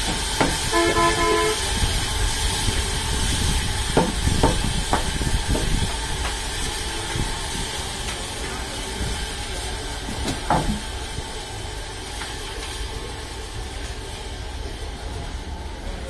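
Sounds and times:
sawmill machinery running: 0.0s - 16.0s
short horn-like tone: 0.7s - 1.7s
sharp wooden knocks: 4.0s - 5.1s.

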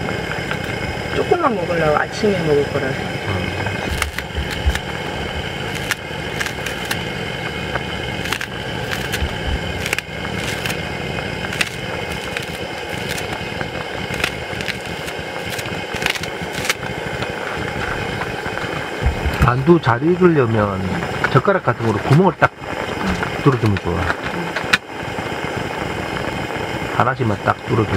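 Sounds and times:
gas burner noise: 0.0s - 27.9s
scissors snipping green onion: 3.9s - 4.9s, 5.6s - 7.0s, 8.2s - 10.8s, 11.5s - 17.4s.

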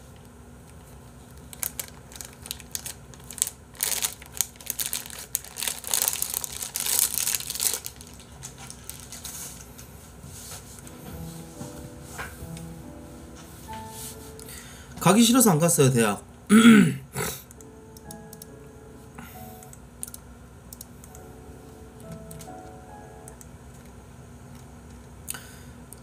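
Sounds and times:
plastic bottle crumpling: 1.5s - 9.4s.

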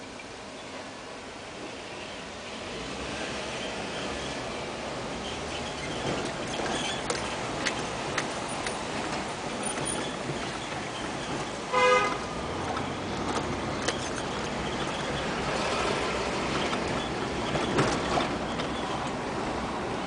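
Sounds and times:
car road and engine noise: 0.0s - 20.0s
car horn toot: 11.7s - 12.3s.

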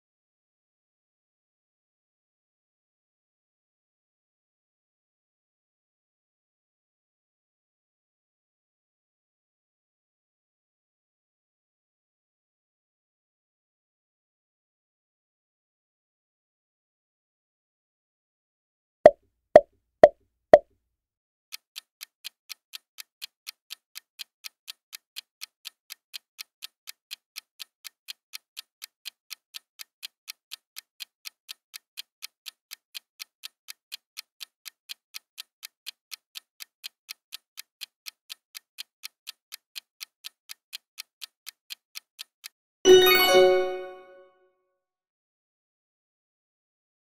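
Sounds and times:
clock ticking: 21.5s - 43.9s
bright chime: 42.9s - 44.2s.

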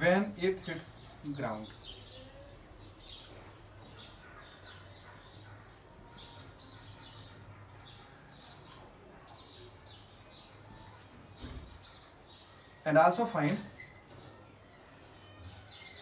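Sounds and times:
marker squeaking on whiteboard: 13.7s - 14.2s.

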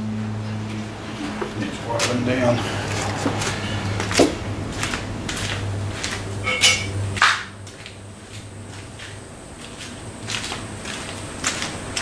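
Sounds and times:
steady low hum: 0.0s - 12.0s
metal clinks and knocks: 6.4s - 7.0s.

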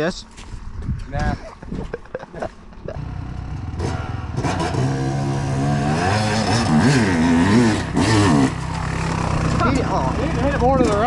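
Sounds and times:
dirt bike engine revving: 2.9s - 11.0s.

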